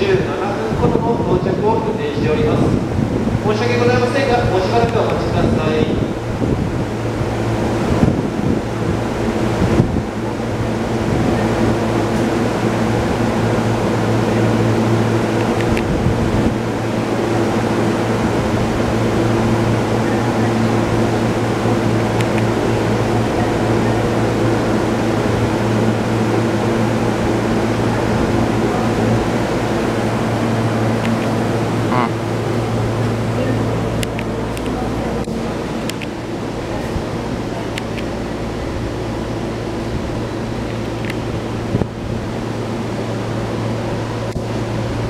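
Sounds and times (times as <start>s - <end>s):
train equipment low hum: 0.0s - 45.0s.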